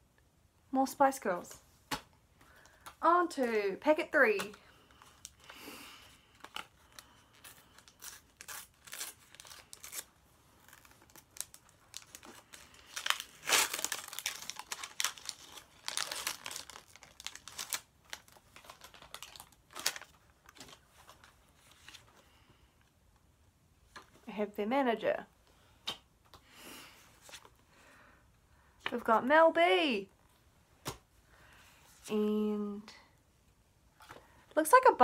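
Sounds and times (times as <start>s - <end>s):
wrapper tearing and crinkling: 6.4s - 22.0s.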